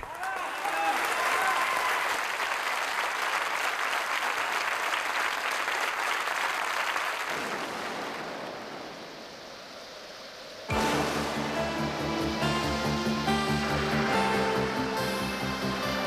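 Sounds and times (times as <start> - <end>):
studio audience applauding: 0.0 - 7.8.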